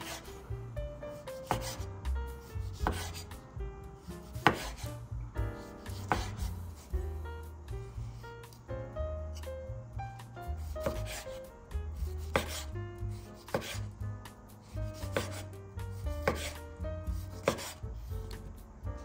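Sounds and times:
knife slicing tomato: 0:00.0 - 0:00.4, 0:01.2 - 0:03.4, 0:04.0 - 0:07.2, 0:10.4 - 0:14.0, 0:14.6 - 0:18.6
soft background music: 0:00.0 - 0:19.0
knife knocking on wooden board: 0:02.8 - 0:03.2, 0:04.4 - 0:04.9, 0:05.9 - 0:06.5, 0:10.8 - 0:11.2, 0:16.2 - 0:16.6, 0:17.4 - 0:17.8.

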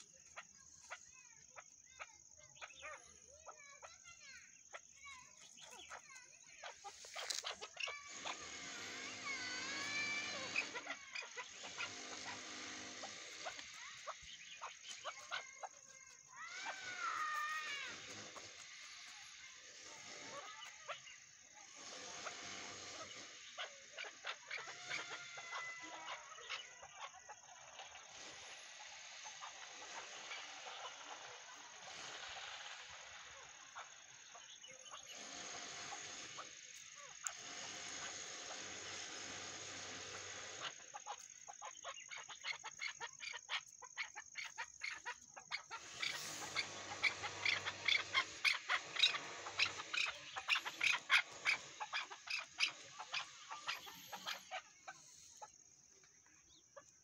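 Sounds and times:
outdoor hiss: 0:05.0 - 0:15.3, 0:15.9 - 0:23.9, 0:28.0 - 0:41.0, 0:45.7 - 0:56.0
partridge wavering call: 0:44.4 - 0:55.5.

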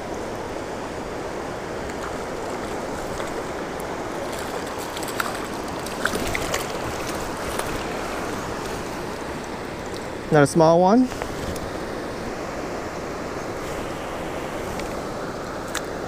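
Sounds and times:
creek water rushing: 0:00.0 - 0:16.0
fish splashing at the surface: 0:01.9 - 0:09.0.

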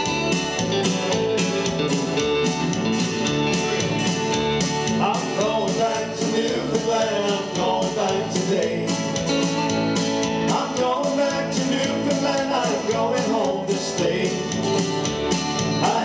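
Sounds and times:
guitars strumming: 0:00.0 - 0:16.0
man singing: 0:04.9 - 0:09.4, 0:10.4 - 0:14.8, 0:15.7 - 0:16.0.

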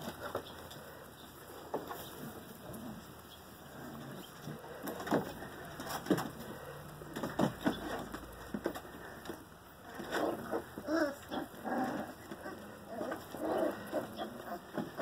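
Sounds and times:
puppies whimpering and crying: 0:09.9 - 0:15.0.

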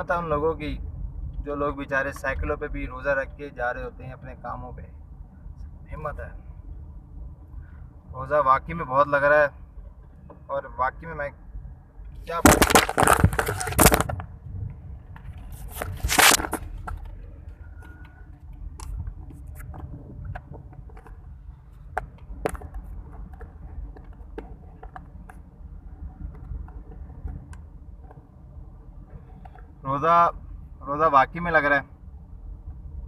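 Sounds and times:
car cabin rumble: 0:12.3 - 0:30.2
phone handling scraping rubs: 0:15.3 - 0:16.8.

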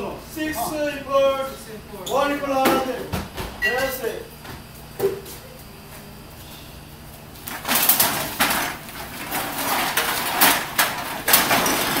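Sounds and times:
cans and bottles clattering into bins: 0:07.5 - 0:12.0.

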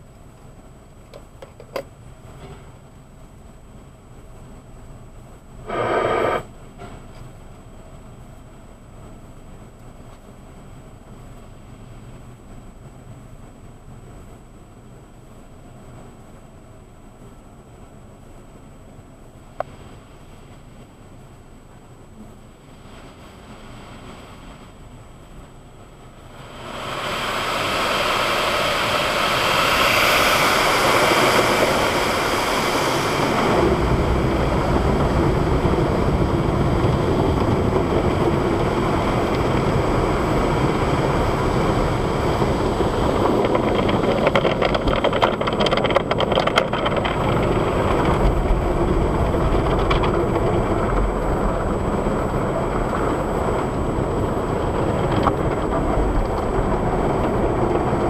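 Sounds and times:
car wash water spray: 0:22.7 - 0:45.4.

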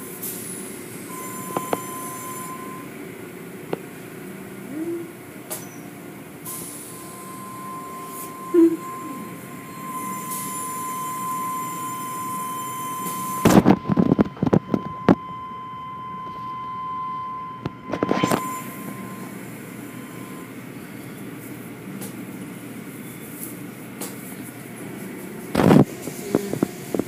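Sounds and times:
high-pitched machinery squeal: 0:01.1 - 0:02.9, 0:06.5 - 0:13.6, 0:17.8 - 0:19.3.

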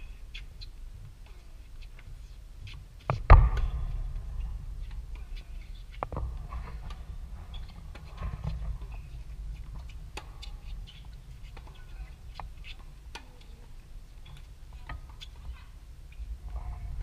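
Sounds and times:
tennis ball struck by racquet: 0:03.1 - 0:07.0.

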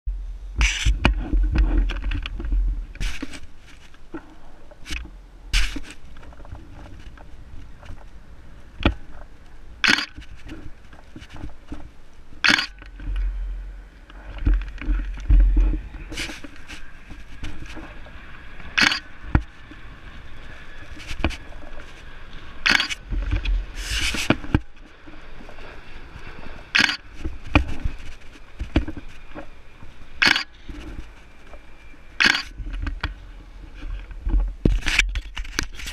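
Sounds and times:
wind rumbling on microphone: 0:00.1 - 0:35.9
camera handling scrapes and knocks: 0:00.6 - 0:04.0, 0:04.8 - 0:07.2, 0:14.1 - 0:17.9, 0:20.8 - 0:22.0, 0:22.6 - 0:24.7, 0:33.8 - 0:35.9.

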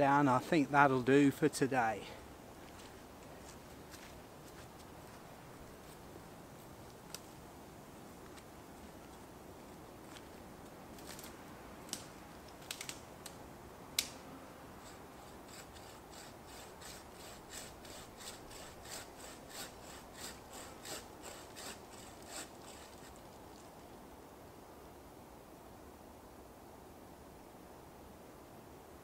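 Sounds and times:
branch cracking: 0:10.9 - 0:13.4, 0:14.0 - 0:14.2
hand saw cutting branch: 0:14.0 - 0:23.6.

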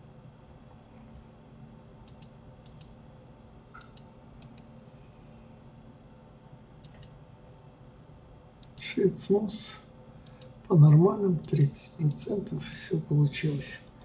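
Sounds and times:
low steady hum: 0:00.0 - 0:14.0
computer mouse clicking: 0:02.0 - 0:03.0, 0:03.8 - 0:04.7, 0:06.8 - 0:07.2, 0:08.6 - 0:08.8, 0:10.2 - 0:10.6.

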